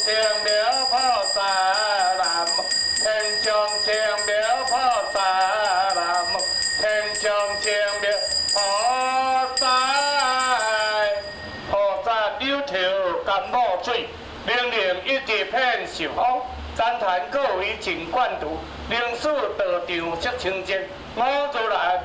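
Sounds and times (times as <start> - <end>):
handbell ringing: 0.0 - 11.9.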